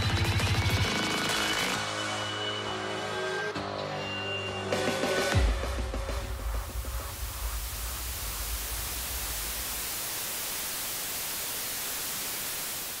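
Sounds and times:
static hiss: 5.6s - 13.0s.

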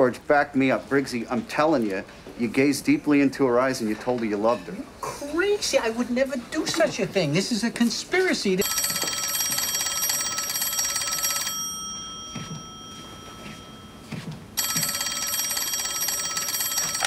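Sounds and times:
telephone bell ringing: 8.6s - 17.0s.

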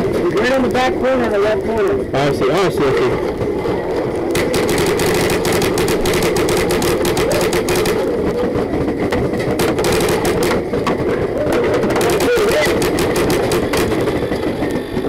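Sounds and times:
paintball markers firing: 4.3s - 14.8s.

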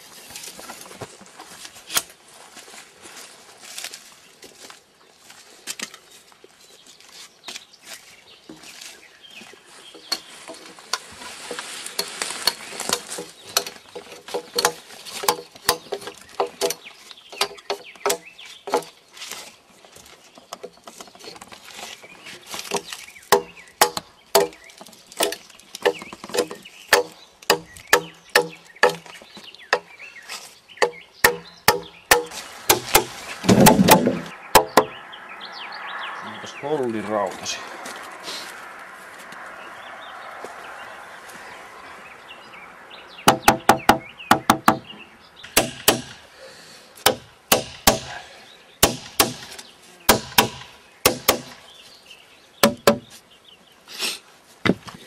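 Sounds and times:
hand tool knocking on log: 52.6s - 53.0s.

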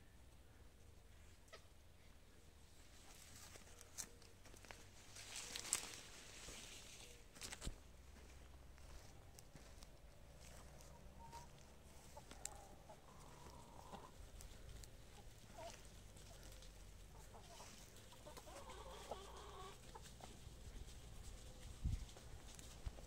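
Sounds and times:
chickens clucking softly: 6.8s - 23.0s.

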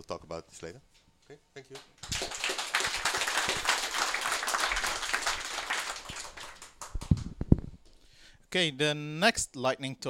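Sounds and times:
audience applauding: 2.0s - 7.2s
microphone handling thumps: 7.0s - 7.8s.

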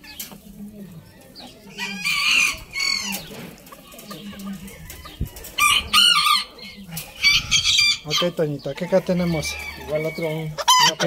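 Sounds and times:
chickens clucking: 0.0s - 11.0s
rooster crowing: 7.2s - 11.0s.

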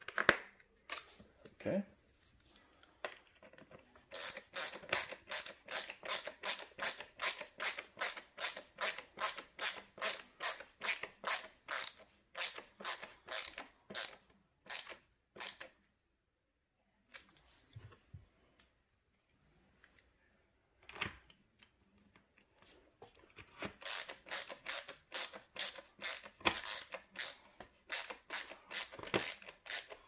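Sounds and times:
screwdriver rasping turns: 3.5s - 15.7s, 23.8s - 30.0s.

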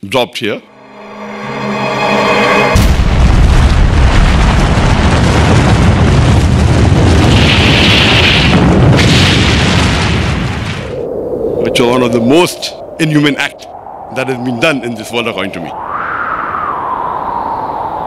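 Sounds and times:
loud explosion blast: 2.6s - 11.0s
deep rumble of blast: 2.8s - 11.4s.

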